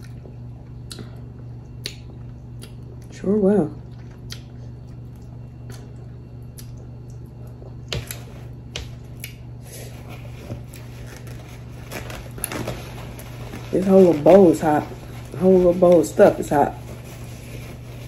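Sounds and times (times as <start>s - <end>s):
wet chewing sounds: 0.0s - 3.2s, 3.8s - 11.4s
steady low hum: 0.0s - 18.0s.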